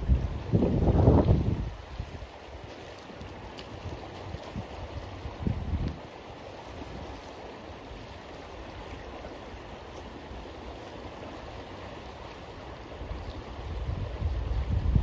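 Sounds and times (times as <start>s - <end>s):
wind buffeting microphone: 0.0s - 7.2s, 12.8s - 15.0s
river water rushing: 0.0s - 15.0s.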